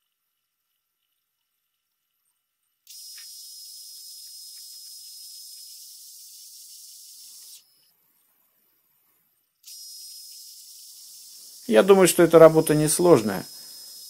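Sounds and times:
lathe turning hiss: 0:02.9 - 0:14.0.

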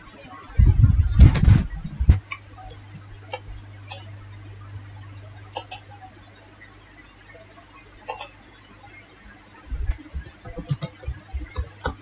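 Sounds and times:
steady low hum: 0:00.0 - 0:12.0
computer mouse clicking: 0:09.9 - 0:12.0.

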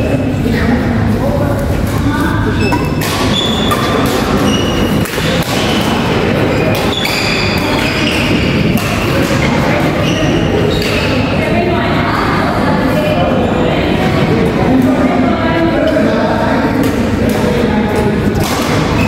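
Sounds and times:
hall noise with voices: 0:00.0 - 0:19.0
shoes squeaking on wooden court: 0:02.5 - 0:11.0
rackets hitting shuttlecock: 0:02.6 - 0:10.1, 0:18.3 - 0:19.0.

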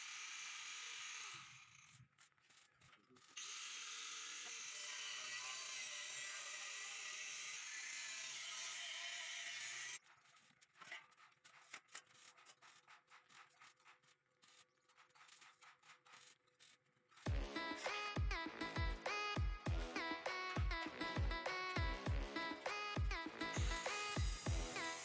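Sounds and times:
arc welding sizzling hiss: 0:22.7 - 0:25.0.

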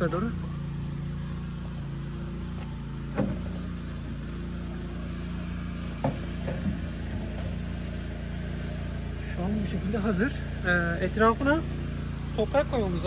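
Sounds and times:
petrol engine running: 0:00.0 - 0:13.0.

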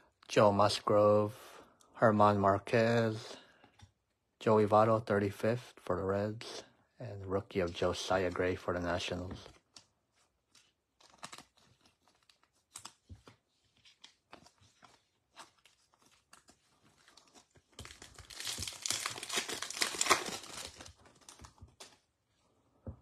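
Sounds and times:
card pack wrapper crinkling and tearing: 0:09.3 - 0:22.1.

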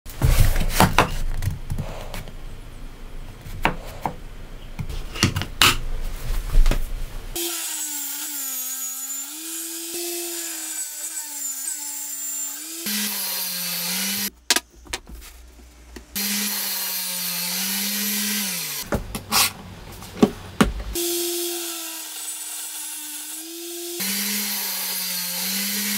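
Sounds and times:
power tool motor running: 0:16.2 - 0:18.9, 0:20.9 - 0:25.9.

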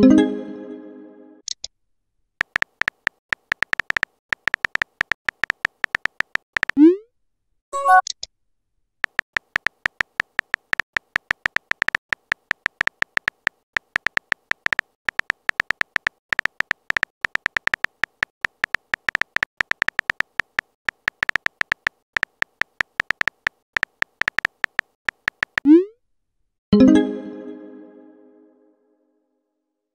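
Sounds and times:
keyboard key-tap ticks: 0:02.4 - 0:06.8, 0:09.0 - 0:25.7.

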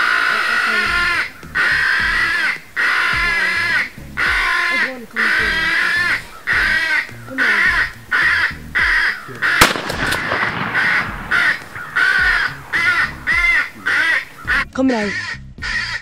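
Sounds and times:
crow cawing: 0:00.0 - 0:16.0.

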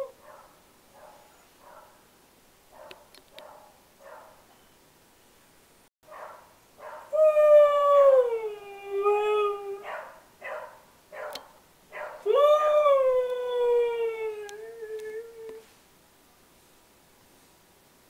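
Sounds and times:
dog yipping: 0:06.1 - 0:07.1, 0:09.8 - 0:12.3
husky howling: 0:12.0 - 0:15.6.

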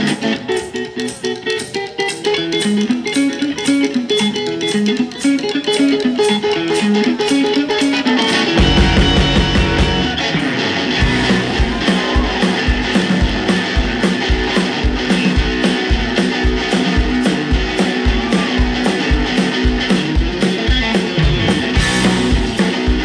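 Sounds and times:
drum kit beat: 0:00.0 - 0:23.0
electric guitars: 0:00.0 - 0:23.0.

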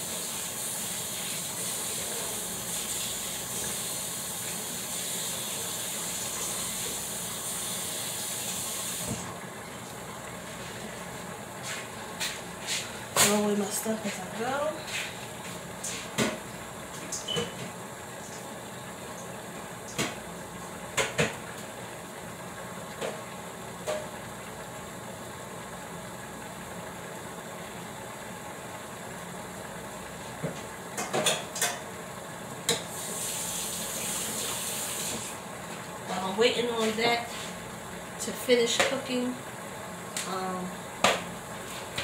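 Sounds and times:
tap running: 0:08.0 - 0:18.5, 0:19.1 - 0:21.8.

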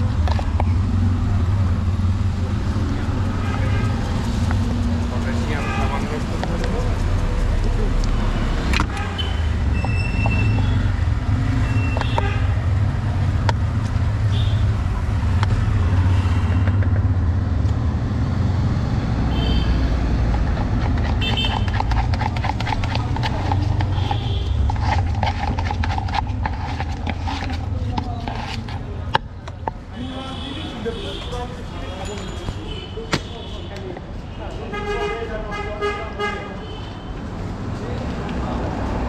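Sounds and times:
street traffic rumble: 0:00.0 - 0:39.0
spoon clattering in plastic mug: 0:20.3 - 0:27.7.

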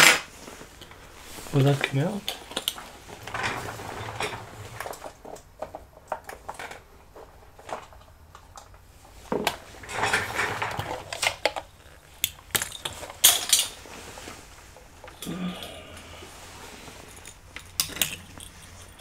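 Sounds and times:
small tools clicking and clinking: 0:09.4 - 0:13.8, 0:17.0 - 0:19.0.

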